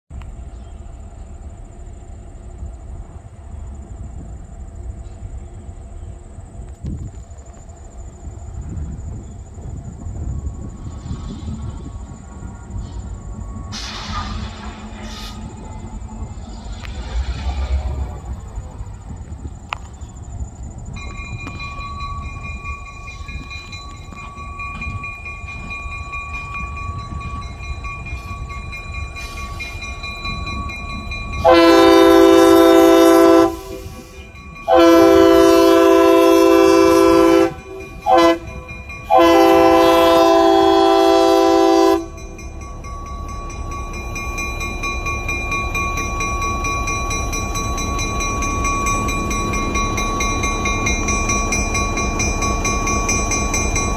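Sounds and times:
diesel engine rumbling: 7.3s - 53.9s
crossing signal bell ringing: 20.9s - 53.9s
locomotive air horn blasts: 31.4s - 42.2s.

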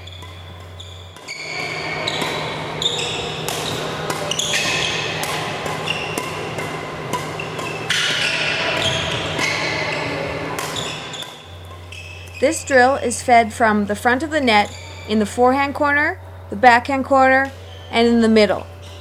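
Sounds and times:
shoe squeaks on court floor: 0.0s - 5.2s, 5.8s - 6.2s, 7.4s - 12.7s, 14.7s - 15.1s, 17.6s - 18.0s
racket hitting shuttlecock: 0.0s - 12.4s
steady low hum: 0.0s - 19.0s.

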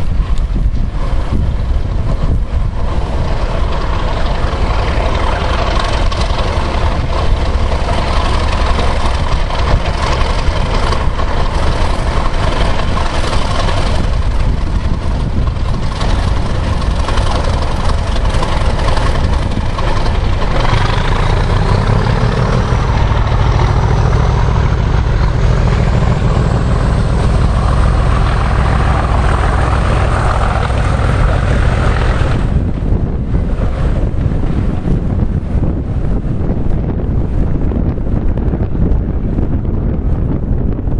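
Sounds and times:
diesel locomotive engine rumble: 0.0s - 40.9s
high whine rising in pitch: 20.2s - 33.7s.

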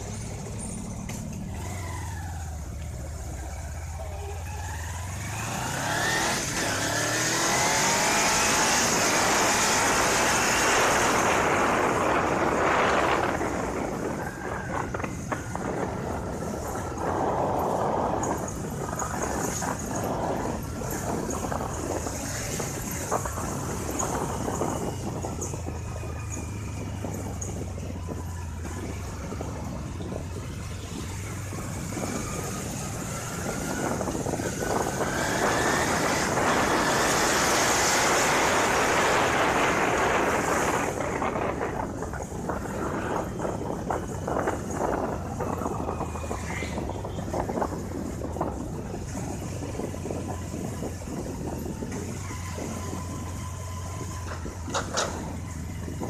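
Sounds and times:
vehicle engine idling: 0.0s - 6.0s
rushing road noise: 0.0s - 56.0s
vehicle pulling away: 0.0s - 56.0s.

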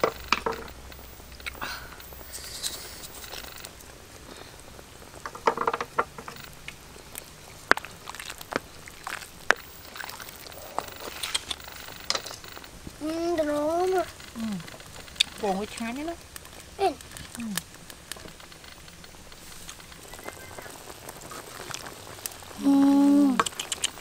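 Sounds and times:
fire pops and crackles: 0.0s - 24.0s
soup bubbling: 0.0s - 24.0s.

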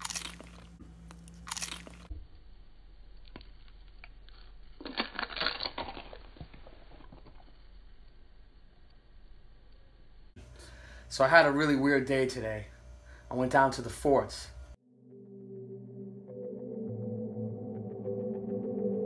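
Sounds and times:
chip crunching while chewed: 0.0s - 2.1s, 3.2s - 7.7s.

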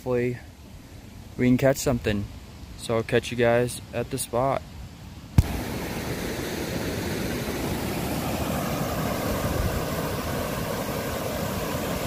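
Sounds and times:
churning whitewater: 5.4s - 12.0s
water rushing down spillway: 5.4s - 12.0s.

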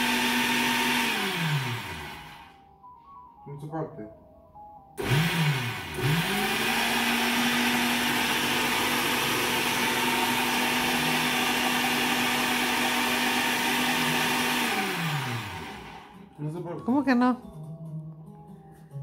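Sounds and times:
blender motor running: 0.0s - 2.6s, 5.0s - 16.2s.

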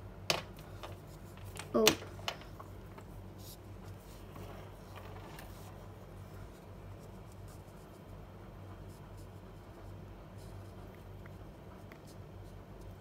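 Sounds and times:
low room hum: 0.0s - 13.0s
marker scratching on paper: 8.9s - 13.0s.

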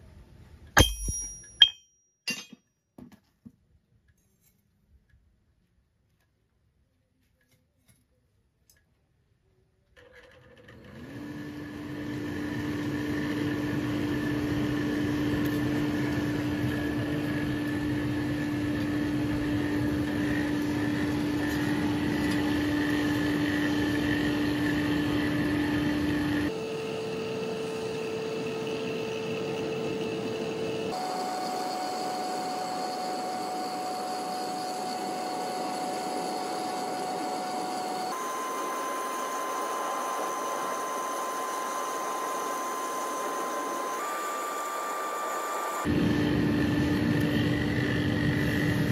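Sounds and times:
forge air blower whining hum: 10.6s - 48.9s.

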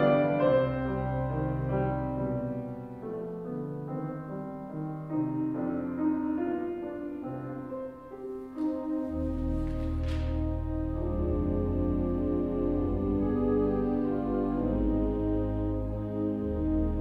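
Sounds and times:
grand piano chords: 0.0s - 17.0s
church organ chords: 9.0s - 17.0s.

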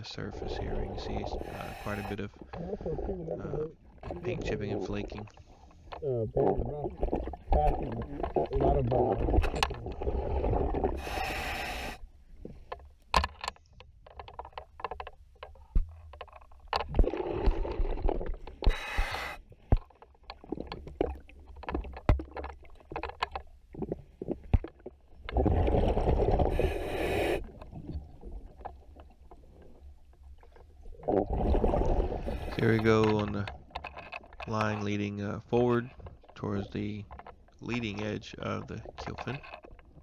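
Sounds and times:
regulator inhalation hiss: 1.4s - 2.2s, 11.0s - 12.0s, 18.7s - 19.4s
exhaled bubbles underwater: 6.2s - 11.2s, 25.3s - 29.8s, 30.4s - 32.6s.

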